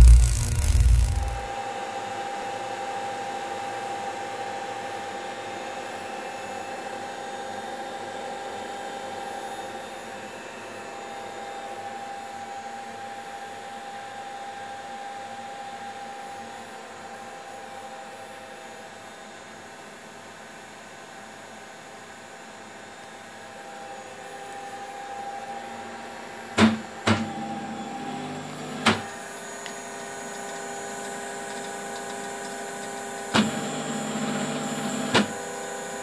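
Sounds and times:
cooling fans whirring: 0.0 - 1.5, 25.7 - 36.0
high whine: 0.0 - 1.5.

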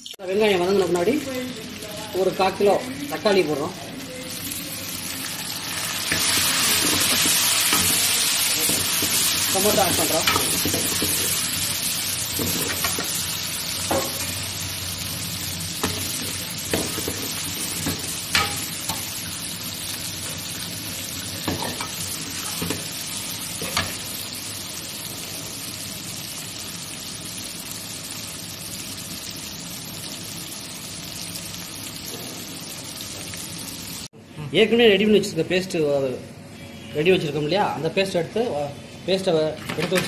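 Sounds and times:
vegetables sizzling in oil: 0.0 - 34.1.

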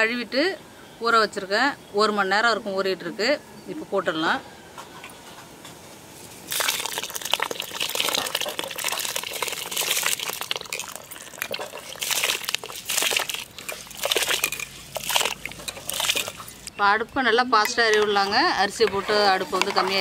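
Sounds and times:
rice grains ticking: 6.5 - 16.7
water pouring into a metal pot: 6.5 - 16.7.

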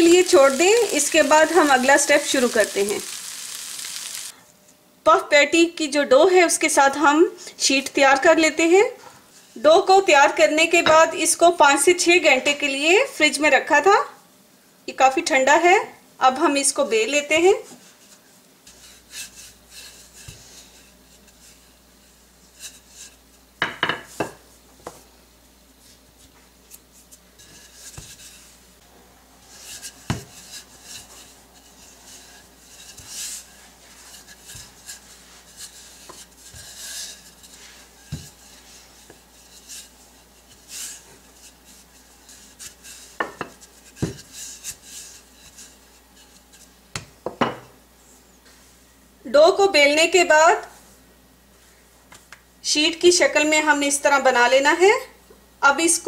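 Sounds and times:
rolling pin rubbing on dough: 0.0 - 4.2, 17.6 - 23.4, 25.7 - 28.7, 29.4 - 46.8
rolling pin knocking on counter: 43.2 - 44.2.

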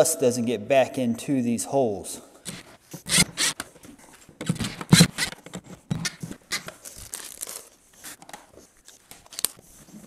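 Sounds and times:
gloved hands rustling and scraping: 2.5 - 10.0.

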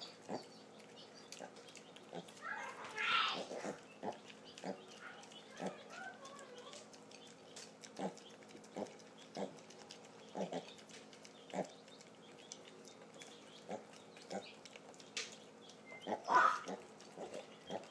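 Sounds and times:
pigs grunting: 0.0 - 17.9.

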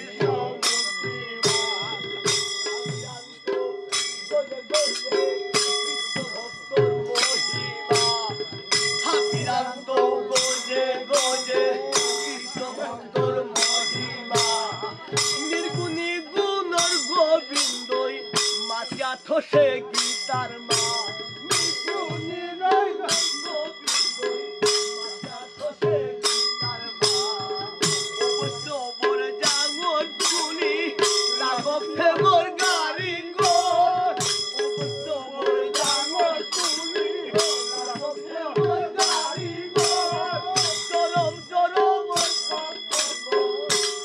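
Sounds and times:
ringing metal percussion: 0.0 - 44.0.

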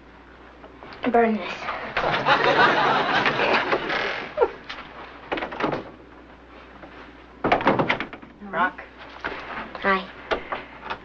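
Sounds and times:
laugh track laughter: 2.0 - 4.7
door opening: 3.1 - 4.6, 5.3 - 6.0.

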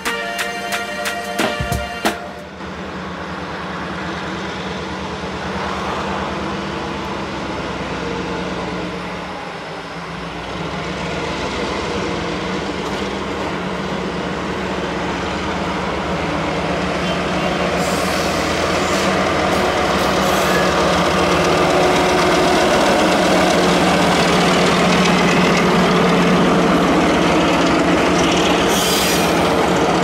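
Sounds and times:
music notes: 0.0 - 2.5
locomotive engine drone: 0.0 - 30.0.

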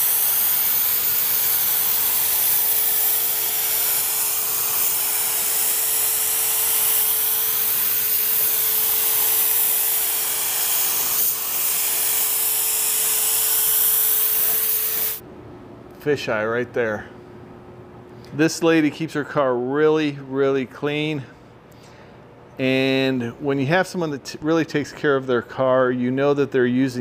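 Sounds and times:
spray gun hissing: 0.0 - 15.2.

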